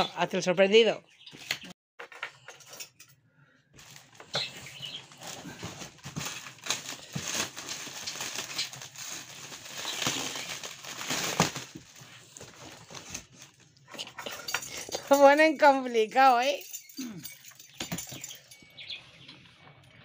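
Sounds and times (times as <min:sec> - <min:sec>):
packaging crinkling and tearing: 0:03.8 - 0:13.8.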